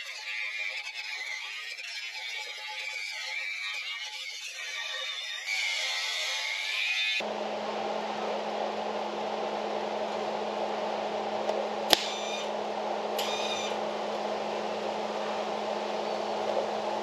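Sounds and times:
arc welding bursts: 7.2s - 17.0s
cooling fan running: 7.2s - 17.0s
welder humming: 7.2s - 17.0s
sharp click: 11.5s - 12.4s.

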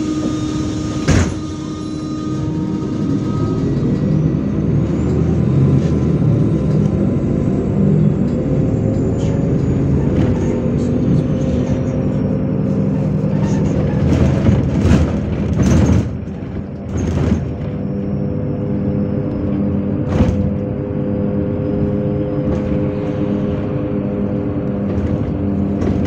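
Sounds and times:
bus engine running: 0.0s - 26.0s.

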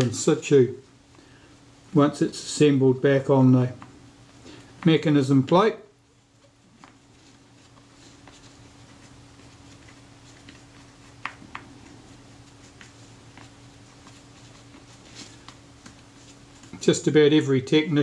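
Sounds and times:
low steady hum: 0.0s - 18.0s
cotton swab scratching metal: 7.4s - 16.9s.

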